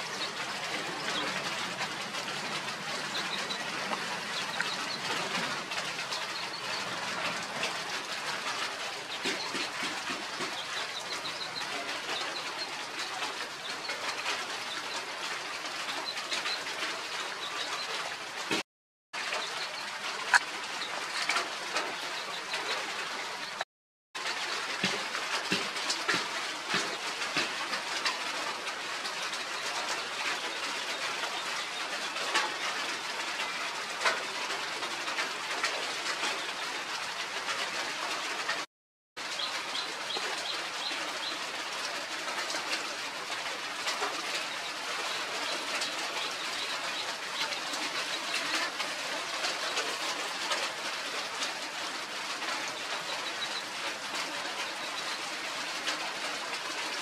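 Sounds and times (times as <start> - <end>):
birds chirping and cooing: 0.0 - 7.1.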